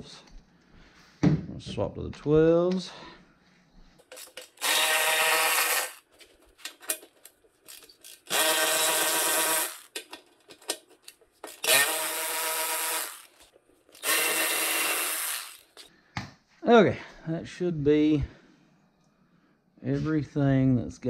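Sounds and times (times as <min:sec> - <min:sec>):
cordless ratchet motor whirring: 0:04.1 - 0:06.0, 0:07.7 - 0:10.2, 0:11.4 - 0:15.9.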